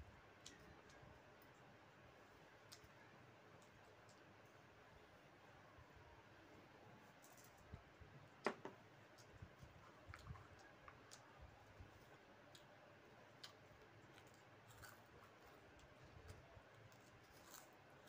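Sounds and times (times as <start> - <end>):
faint clicks and taps of eating: 0.3 - 1.7, 2.5 - 4.6, 7.2 - 17.7.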